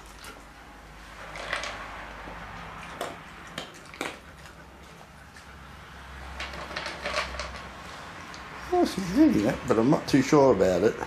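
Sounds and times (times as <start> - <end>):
dog crunching kibble: 0.0 - 5.6, 6.2 - 8.4.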